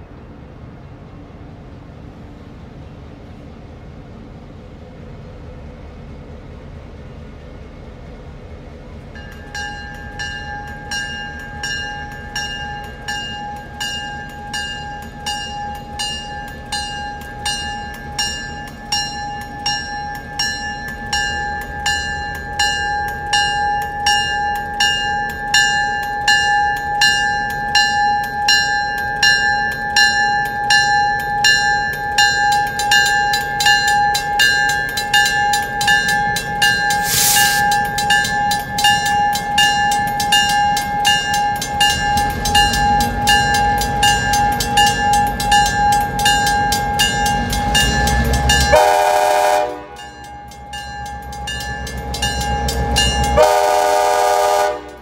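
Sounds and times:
diesel locomotive rumble: 0.0 - 55.0
railroad crossing bell ringing: 8.8 - 55.0.

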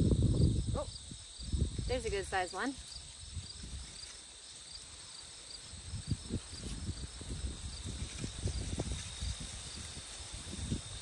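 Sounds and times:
crickets chirping: 0.0 - 11.0
soil scraping and rustling: 1.8 - 11.0.

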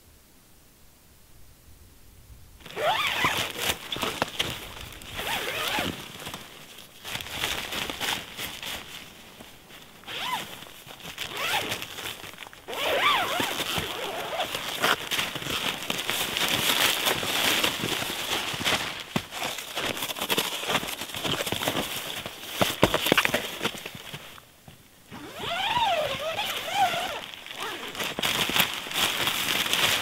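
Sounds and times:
tent zipper rasping: 2.6 - 6.3, 10.0 - 23.8, 25.1 - 30.0
tent fabric rustling: 2.6 - 24.4, 25.1 - 30.0.

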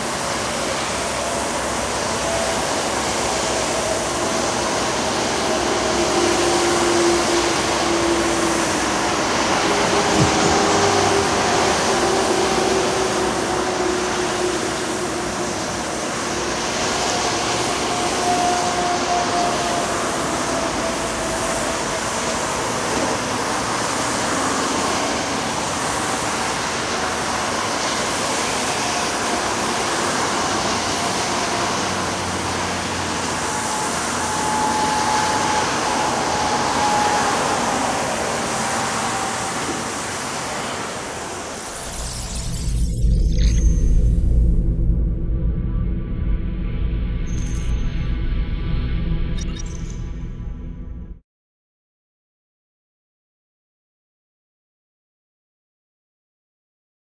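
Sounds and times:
heavy vehicle and machinery rush: 0.0 - 51.2.

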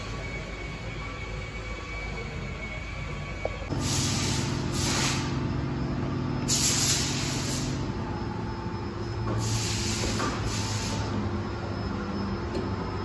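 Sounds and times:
short hisses: 9.4 - 11.1.

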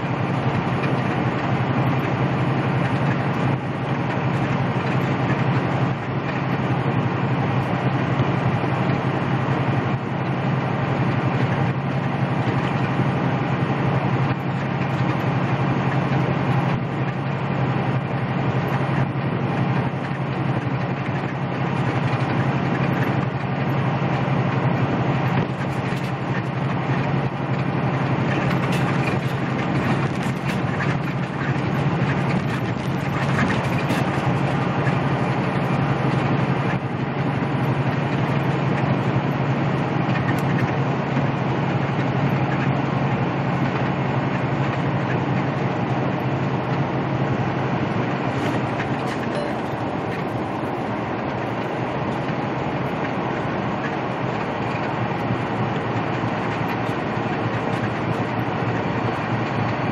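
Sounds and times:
truck diesel engine droning: 0.0 - 59.9.

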